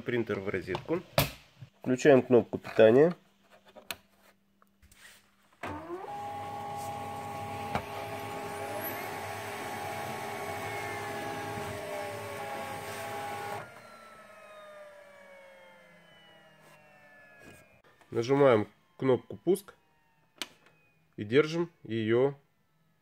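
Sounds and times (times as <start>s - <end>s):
printer motors whining: 5.6s - 18.6s
motor coasting down whine: 6.0s - 19.0s.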